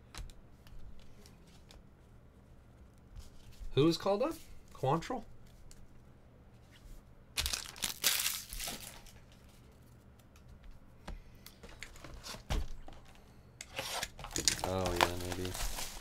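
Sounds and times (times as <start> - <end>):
plastic packaging crinkling: 7.4 - 9.4, 13.8 - 16.0.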